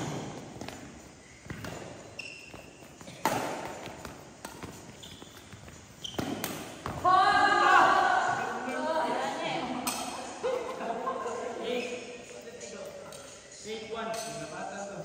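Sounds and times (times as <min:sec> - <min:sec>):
racket striking shuttlecock: 0:00.0 - 0:04.9, 0:06.0 - 0:07.0, 0:09.8 - 0:10.2
shoes squeaking on floor: 0:00.0 - 0:07.0, 0:11.3 - 0:14.6.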